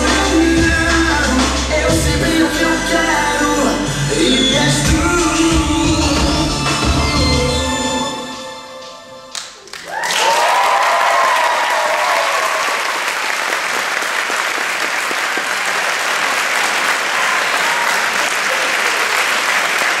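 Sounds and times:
dance music: 0:00.0 - 0:09.7
audience applauding: 0:09.3 - 0:20.0
whoops and shouts: 0:09.8 - 0:13.0.

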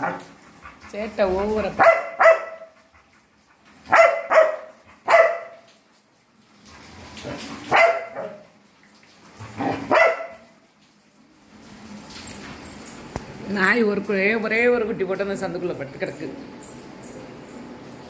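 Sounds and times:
dog barking: 0:01.8 - 0:02.8, 0:03.9 - 0:05.7, 0:07.7 - 0:08.4, 0:09.6 - 0:10.5.

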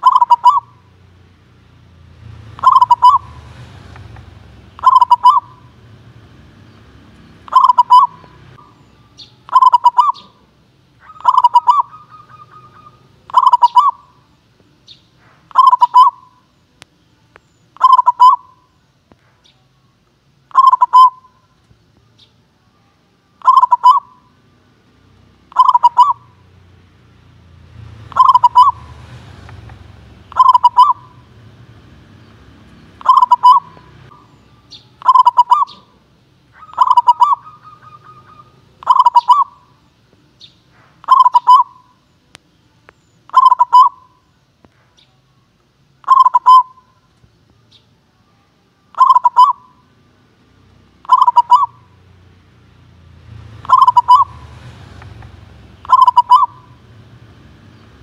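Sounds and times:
dove cooing: 0:00.0 - 0:00.9, 0:02.2 - 0:06.0, 0:07.3 - 0:14.3, 0:15.4 - 0:16.4, 0:17.8 - 0:18.7, 0:20.5 - 0:21.4, 0:23.4 - 0:24.4, 0:25.5 - 0:26.5, 0:27.9 - 0:32.2, 0:32.8 - 0:39.8, 0:41.0 - 0:42.0, 0:43.3 - 0:44.2, 0:46.0 - 0:47.0, 0:48.9 - 0:49.9, 0:51.0 - 0:52.0, 0:53.4 - 0:57.0.

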